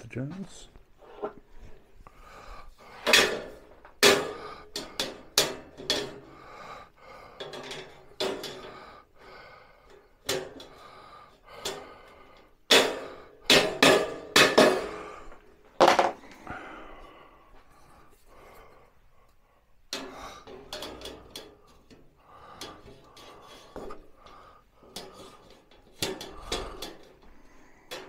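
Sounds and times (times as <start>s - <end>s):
metallic knocks and clanks: 2.9s - 6.4s, 7.4s - 8.8s, 12.6s - 16.6s, 19.8s - 28.0s.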